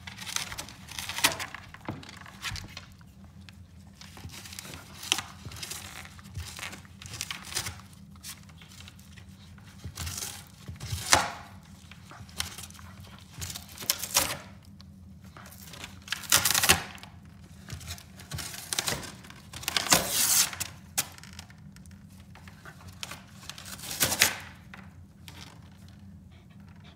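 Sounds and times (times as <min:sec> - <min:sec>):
dog tearing cardboard: 0:00.0 - 0:02.9, 0:04.0 - 0:08.9, 0:09.6 - 0:14.5, 0:17.8 - 0:21.1, 0:22.7 - 0:24.6
cardboard crinkling: 0:00.0 - 0:14.4.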